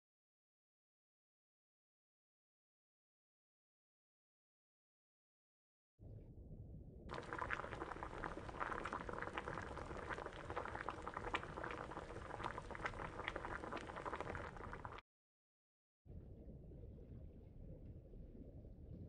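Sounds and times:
water boiling in a pot: 7.1s - 15.0s.

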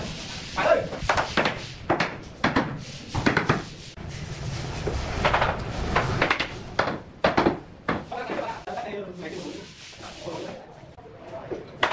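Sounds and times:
wooden boards knocking and rubbing: 0.9s - 3.8s, 4.8s - 8.6s.

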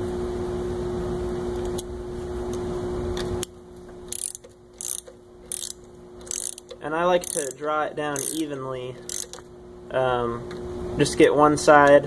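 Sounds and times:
steady hum: 0.0s - 12.0s
ratchet wrench clicking: 4.1s - 9.4s.

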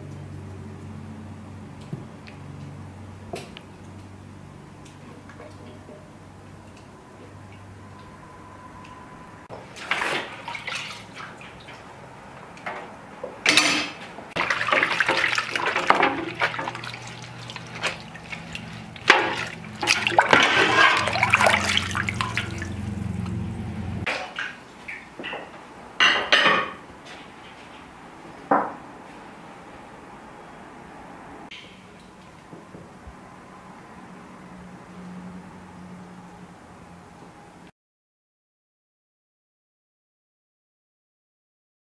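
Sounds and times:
water sloshing and splashing: 9.5s - 12.9s, 13.6s - 25.8s
cloth scrubbing a plate: 14.4s - 23.3s
dishware knocking: 20.3s - 22.6s, 25.2s - 26.8s.

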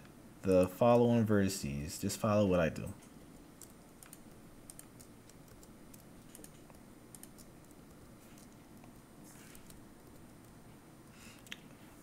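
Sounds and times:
keyboard and mouse clicks: 3.6s - 10.6s.

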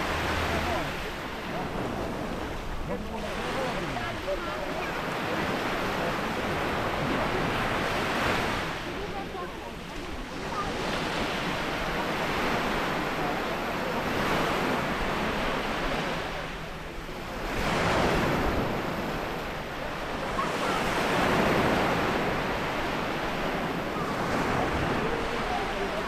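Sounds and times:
waves breaking on stony shore: 0.0s - 26.0s.

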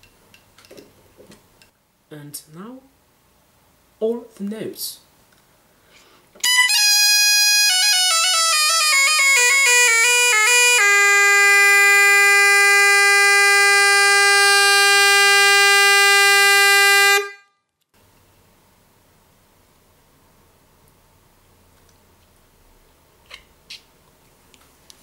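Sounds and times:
double-reed wind instrument notes: 6.4s - 17.4s.

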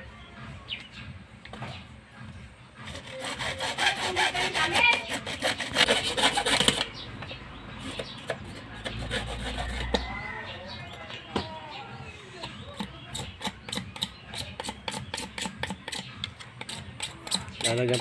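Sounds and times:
hand saw cutting pipe: 2.8s - 7.0s, 7.8s - 10.1s, 12.7s - 18.0s.

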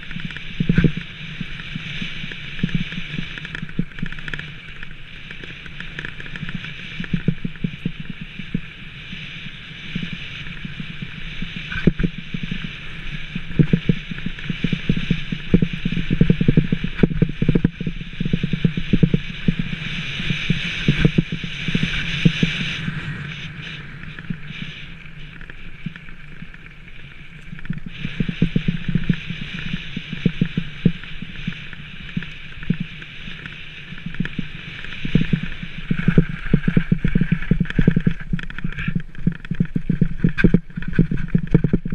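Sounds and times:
bike knocking and rattling: 0.0s - 41.9s
bike rolling on gravel: 0.0s - 41.9s.

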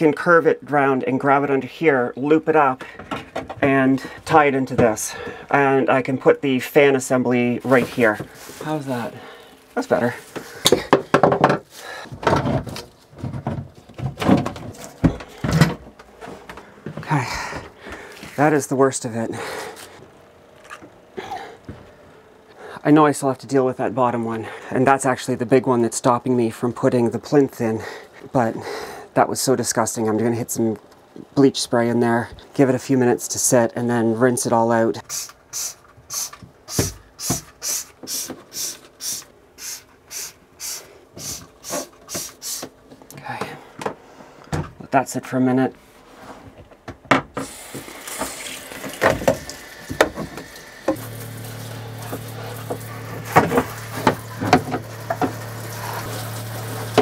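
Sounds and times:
knocks and clatter of hoses: 2.8s - 5.0s, 10.3s - 18.1s, 46.5s - 57.0s
spray bottle squirting: 35.1s - 42.8s, 47.4s - 57.0s.

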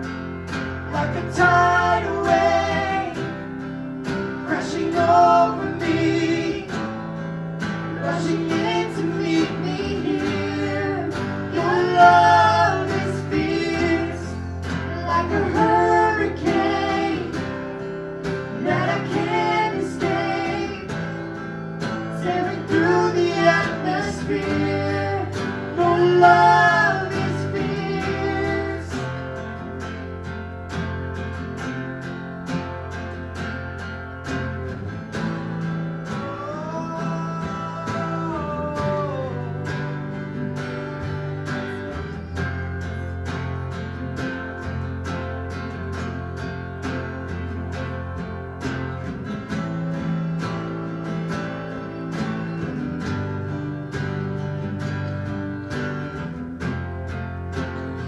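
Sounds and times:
electric guitar: 0.0s - 58.0s
strummed acoustic guitar: 0.0s - 58.0s
person singing: 7.9s - 17.5s, 22.1s - 29.2s, 36.1s - 40.1s.

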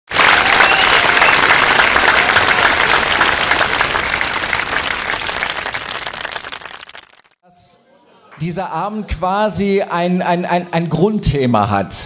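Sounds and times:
audience applauding: 0.1s - 7.4s.

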